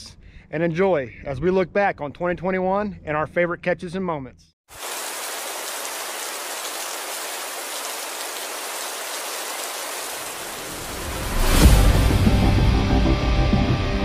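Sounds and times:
rain falling on water: 4.7 - 11.4
dramatic music with hit: 11.1 - 14.0.

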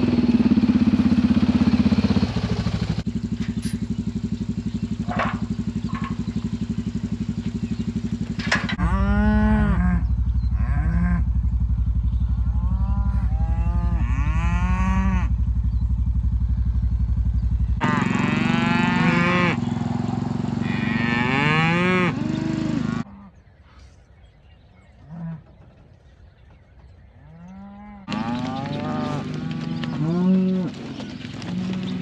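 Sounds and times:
engine idling: 0.0 - 8.8, 9.5 - 23.0
cattle mooing: 8.6 - 11.3, 12.4 - 15.4, 17.8 - 19.6, 20.5 - 23.3, 27.2 - 32.0.

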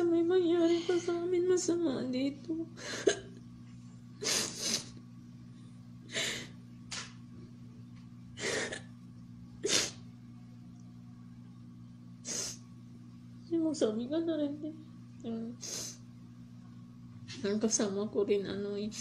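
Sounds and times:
low electrical hum: 0.0 - 19.0
woman sniffing through face mask: 4.2 - 5.0, 9.6 - 10.0, 12.2 - 12.6, 15.6 - 16.0.

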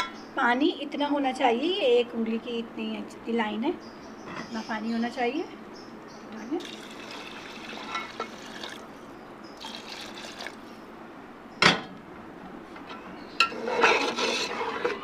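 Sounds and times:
water pouring into a pot: 6.6 - 8.9, 9.6 - 10.6.

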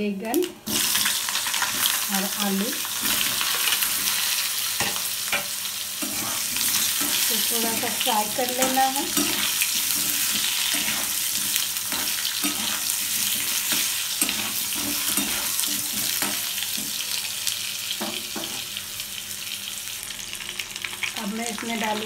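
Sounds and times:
vegetables sizzling in hot oil: 0.4 - 22.0
metal spatula scraping: 4.8 - 17.0.

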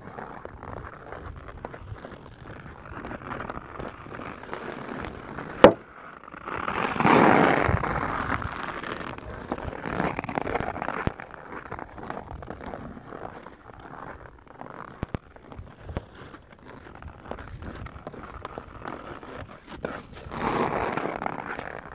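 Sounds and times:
skates scraping on ice: 0.0 - 21.9
puck shot crack: 5.6 - 5.8.

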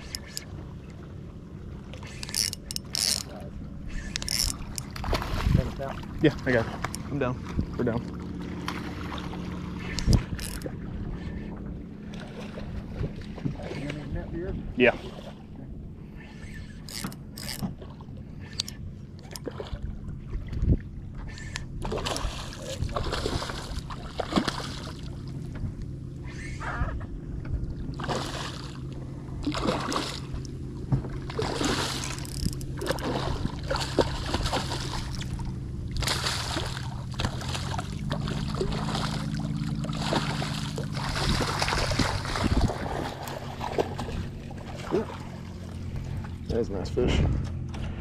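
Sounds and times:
steady low hum: 0.0 - 48.0
fish thrashing and splashing: 1.9 - 11.0, 21.2 - 25.4, 27.8 - 46.4.

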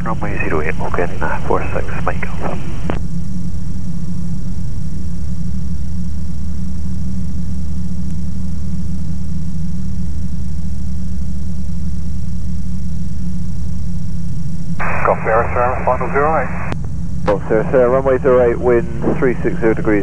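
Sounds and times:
aircraft engine and propeller droning: 0.0 - 20.0.

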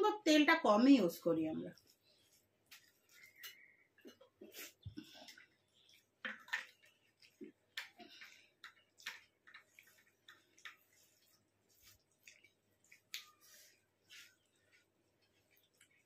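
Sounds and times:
fingers mixing rice on plate: 2.6 - 16.0
person chewing: 14.4 - 16.0.

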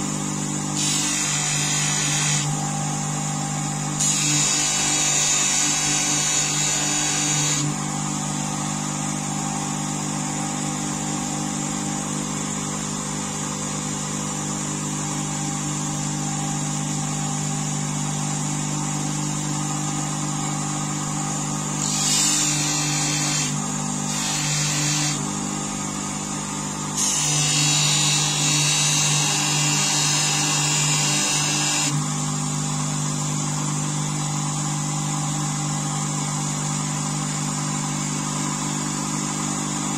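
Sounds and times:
bench grinder motor running: 0.0 - 11.8, 17.6 - 39.9
blade hissing on polishing wheel: 0.8 - 2.6, 4.0 - 7.8, 21.8 - 25.6, 27.0 - 32.0.

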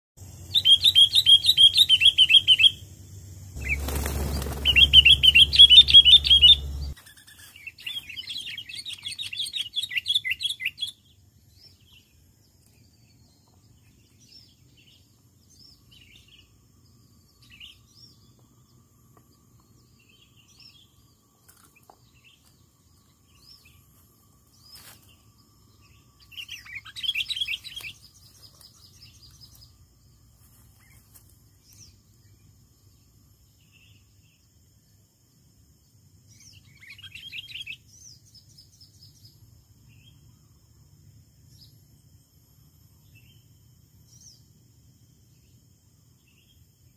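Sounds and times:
faint bird chirps: 0.2 - 35.0, 35.8 - 44.5
birds chattering trills: 3.6 - 11.0.

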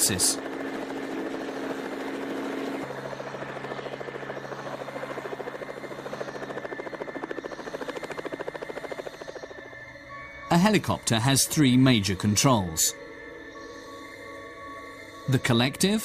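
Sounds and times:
helicopter hovering: 0.0 - 16.0.

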